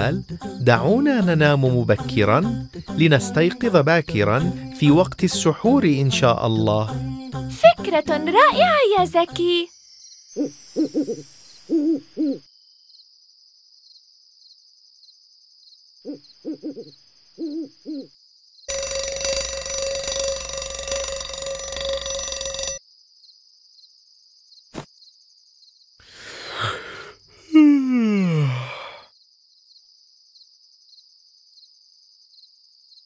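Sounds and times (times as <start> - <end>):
crickets chirring: 0.0 - 27.5
owl hooting: 10.4 - 12.5, 16.1 - 18.1
alarm clock ringing: 18.7 - 22.8.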